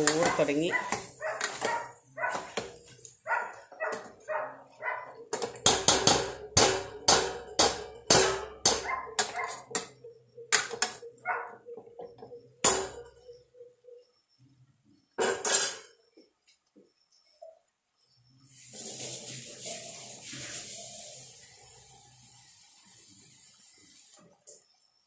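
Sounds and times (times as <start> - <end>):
dog barking: 0.0 - 2.6, 3.2 - 5.3, 8.8 - 9.7, 11.0 - 11.8.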